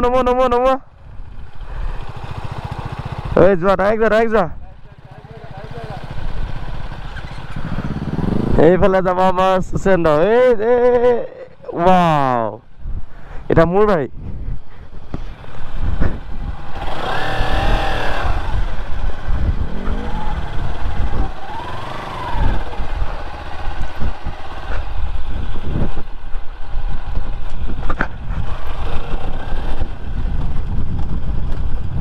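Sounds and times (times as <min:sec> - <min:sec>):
motorcycle engine running: 0:00.0 - 0:09.9, 0:14.4 - 0:32.0
wind buffeting microphone: 0:06.1 - 0:08.9, 0:14.1 - 0:32.0
rising and falling tones: 0:19.4 - 0:23.2.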